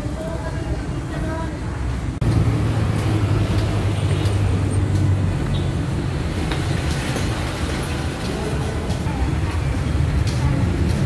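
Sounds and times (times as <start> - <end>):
engine hum droning: 0.0 - 11.0
road traffic rumble: 0.0 - 11.0.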